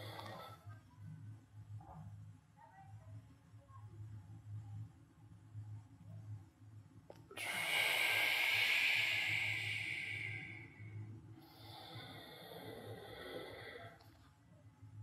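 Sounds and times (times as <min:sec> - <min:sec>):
quiet breath: 0:00.0 - 0:00.8, 0:07.2 - 0:14.8.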